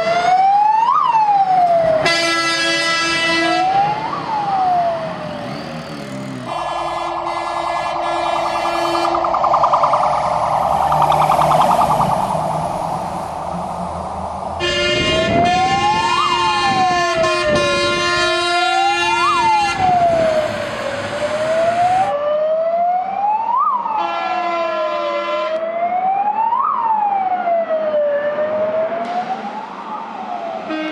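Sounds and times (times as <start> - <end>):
fire engine siren wailing: 0.0 - 30.9
fire engine horn blasts: 2.0 - 3.9, 6.4 - 9.3, 14.6 - 20.2, 24.0 - 25.6, 30.7 - 30.9
truck passing rushing noise: 3.6 - 22.1.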